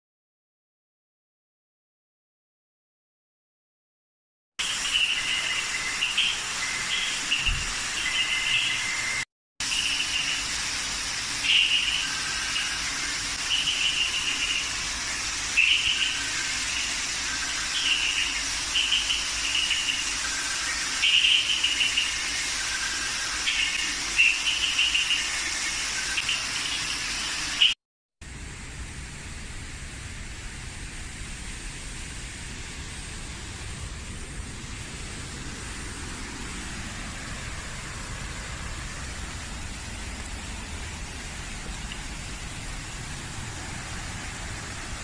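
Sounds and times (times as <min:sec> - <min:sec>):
frogs calling: 0:04.6 - 0:27.8
steady hiss: 0:04.6 - 0:45.0.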